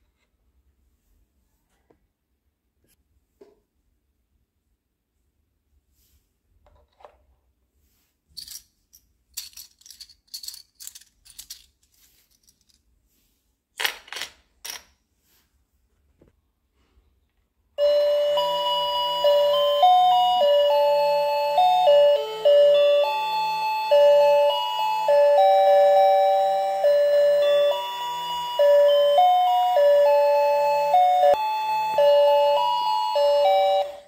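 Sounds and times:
toy playing beeping electronic tune: 17.8 - 34.0.

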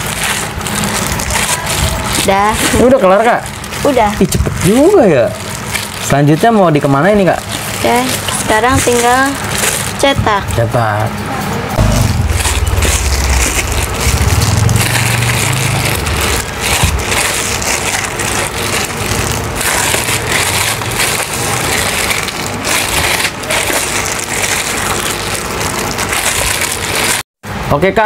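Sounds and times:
plastic bag crinkling: 0.0 - 11.0, 11.8 - 27.3
low rumble: 11.3 - 23.1.

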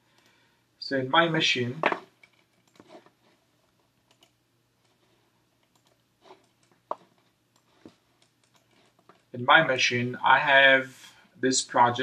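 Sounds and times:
computer mouse clicks: 2.2 - 2.9, 4.0 - 5.0, 5.6 - 9.2.

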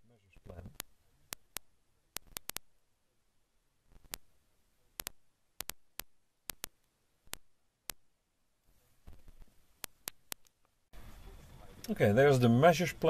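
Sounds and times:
sharp short clicks: 0.6 - 2.7, 5.0 - 8.0, 9.8 - 10.6
faint background rustle: 8.6 - 13.0.

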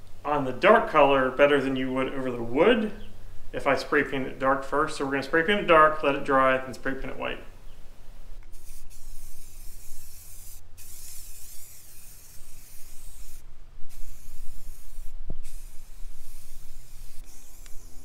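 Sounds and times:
spray paint can hissing: 8.5 - 18.0.

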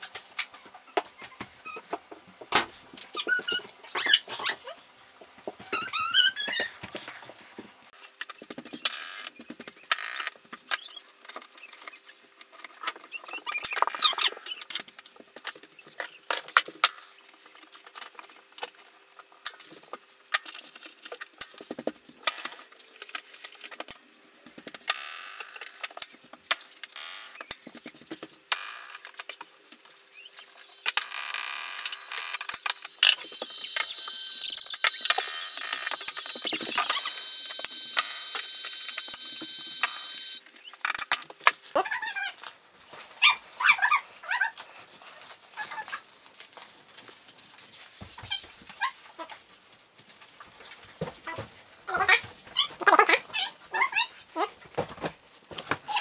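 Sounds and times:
footsteps: 5.1 - 7.9.

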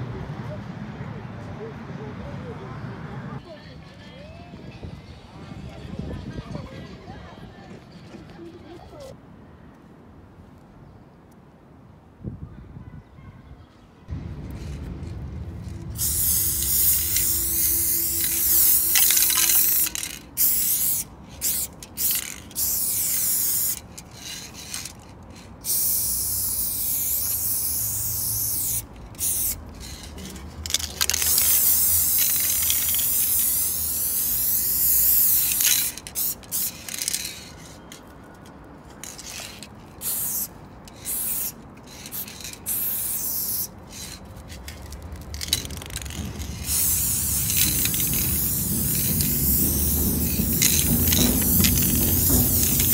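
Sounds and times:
spray paint can hissing: 14.4 - 37.9, 39.0 - 52.9.

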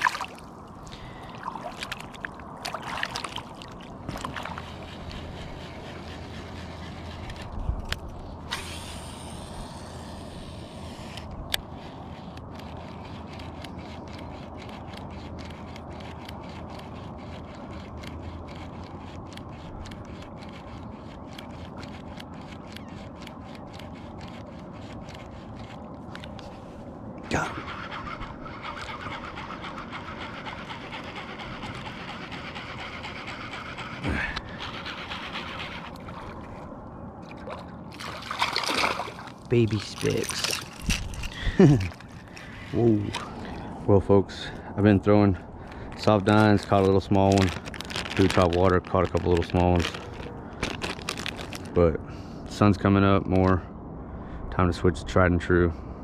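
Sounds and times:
fishing line whirring off spool: 2.9 - 26.6, 27.3 - 36.8
fishing reel ticking: 8.5 - 25.8, 27.8 - 36.2.

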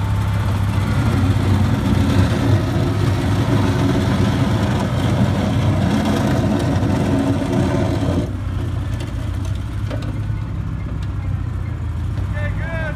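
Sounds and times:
skid-steer loader engine running: 0.0 - 12.9.

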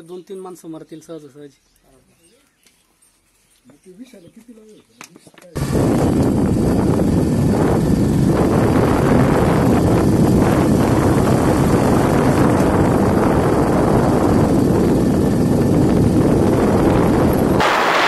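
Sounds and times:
vehicle travel rumble: 5.6 - 18.0
wind rushing over microphone: 5.6 - 18.0.

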